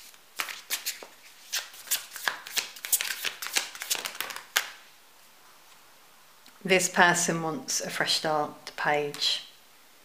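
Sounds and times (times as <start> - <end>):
cards being shuffled: 0.0 - 4.8.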